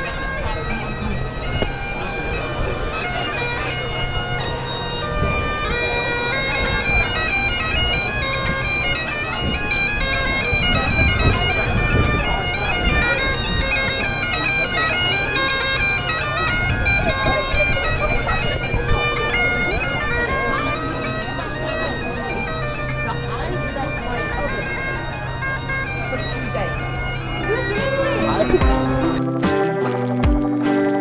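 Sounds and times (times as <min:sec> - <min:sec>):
bagpipe drones and melody: 0:00.0 - 0:31.0.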